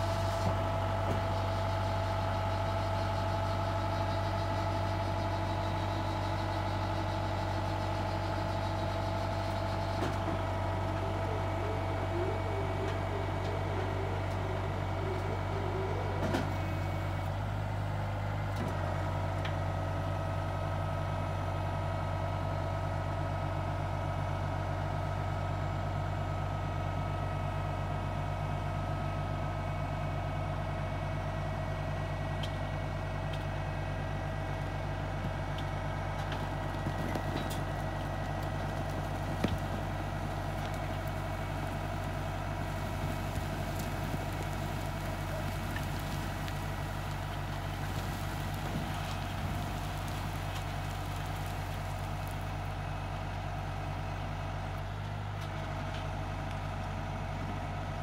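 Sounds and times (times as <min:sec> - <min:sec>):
tractor engine running: 0:00.0 - 0:58.0
hydraulic whine: 0:07.6 - 0:17.4.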